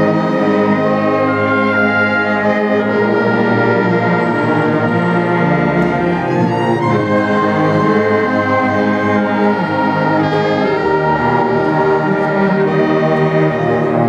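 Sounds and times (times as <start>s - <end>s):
bowed cello and bass notes: 0.0s - 14.0s
orchestra playing slow passage: 0.0s - 14.0s.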